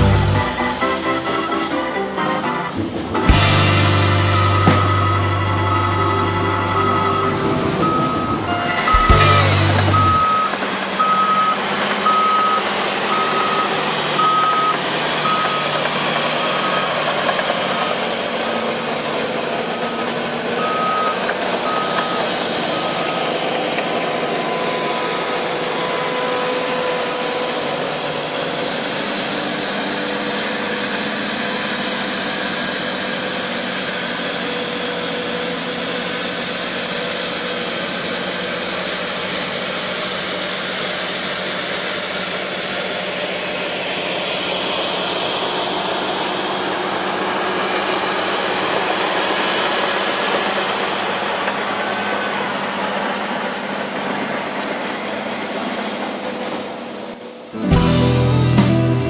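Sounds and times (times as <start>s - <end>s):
diesel engine running: 0.0s - 59.0s
reversing alarm beeping: 3.3s - 18.3s, 19.7s - 27.8s.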